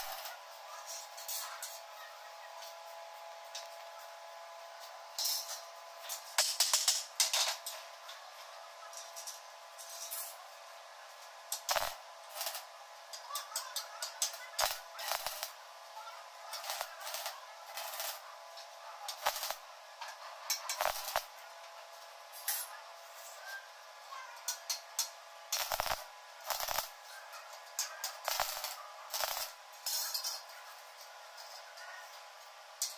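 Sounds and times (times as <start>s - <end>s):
welding arc crackling: 0.0s - 0.3s, 11.5s - 12.7s, 14.2s - 15.6s, 16.5s - 18.2s, 19.1s - 19.6s, 20.6s - 21.3s, 25.5s - 27.0s, 28.0s - 29.6s.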